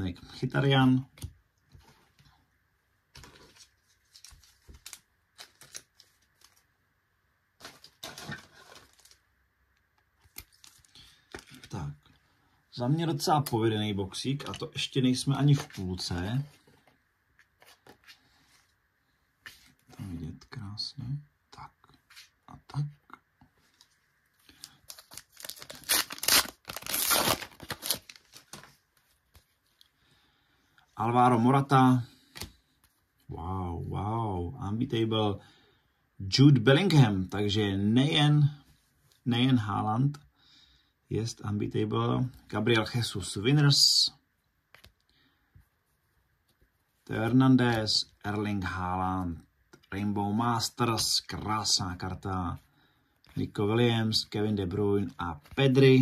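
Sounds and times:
cards rustling: 0:03.1 - 0:06.7, 0:07.6 - 0:09.2, 0:10.0 - 0:12.0, 0:23.6 - 0:29.8.

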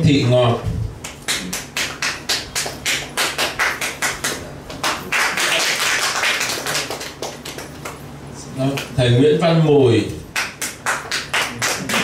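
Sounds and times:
people clapping in unison: 0:01.0 - 0:08.1, 0:10.3 - 0:12.0.

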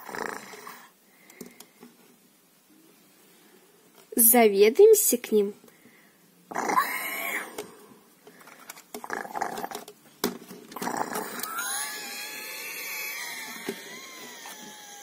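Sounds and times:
dragon growls: 0:10.8 - 0:14.6
long wavering dragon call: 0:11.4 - 0:15.0.

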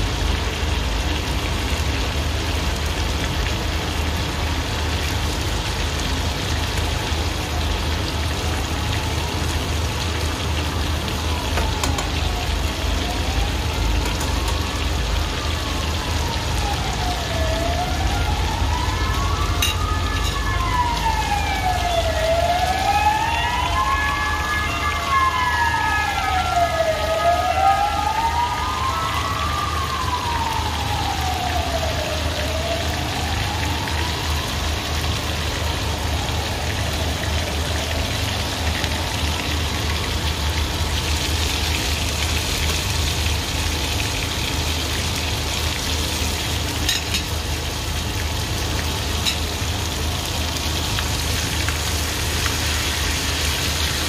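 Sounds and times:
siren wailing: 0:10.4 - 0:39.1
food sizzling in a pan: 0:40.8 - 0:54.0.

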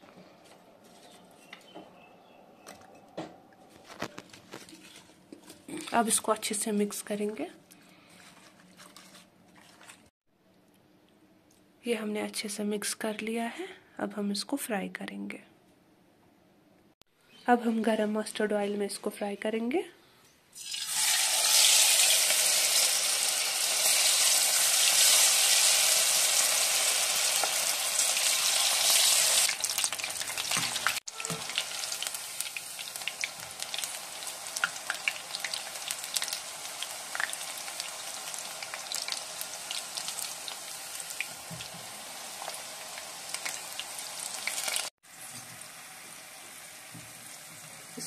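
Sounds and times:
oil crackling: 0:20.6 - 0:44.9
food deep-frying sizzle: 0:20.6 - 0:48.0.

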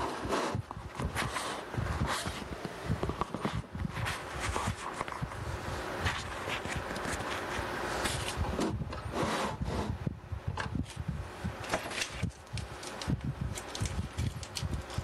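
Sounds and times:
dense scraping noise: 0:03.1 - 0:10.1.

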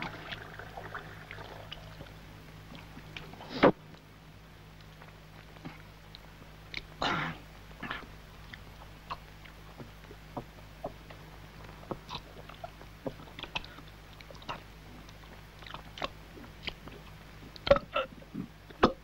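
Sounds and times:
low hum: 0:00.0 - 0:18.9
man chewing and smacking: 0:11.9 - 0:18.0.

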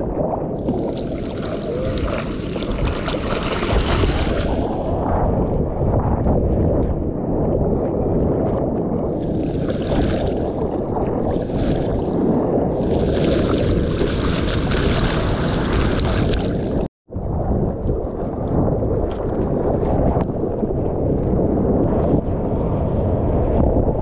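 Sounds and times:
wind buffeting microphone: 0:00.0 - 0:24.0
surf water rushing: 0:00.6 - 0:05.4, 0:09.2 - 0:16.9.

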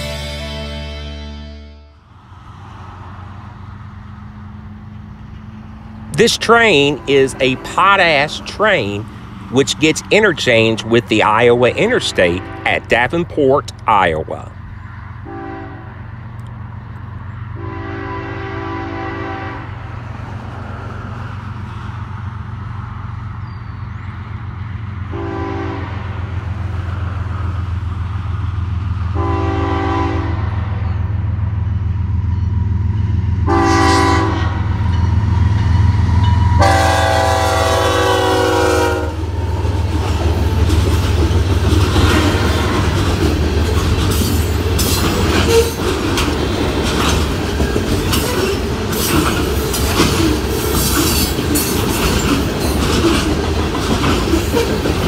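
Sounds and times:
train air horn blasts: 0:06.2 - 0:08.4, 0:11.8 - 0:13.0, 0:15.2 - 0:16.0, 0:17.6 - 0:19.8, 0:25.1 - 0:26.1, 0:29.2 - 0:30.6, 0:33.4 - 0:34.8, 0:36.2 - 0:39.7, 0:45.4 - 0:45.8
deep diesel engine rumble: 0:21.4 - 0:50.7
train cars clickety-clack: 0:32.3 - 0:55.0.

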